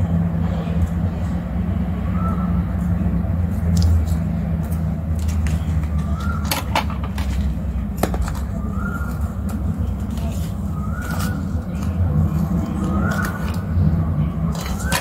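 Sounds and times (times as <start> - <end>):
low background rumble: 0.0 - 15.0
paper stickers clicking and tapping: 3.7 - 13.8.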